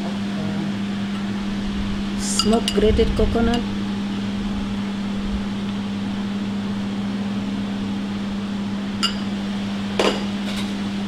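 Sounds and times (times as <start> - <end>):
ventilation fan humming: 0.0 - 11.0
metal spoon clink: 9.0 - 9.3.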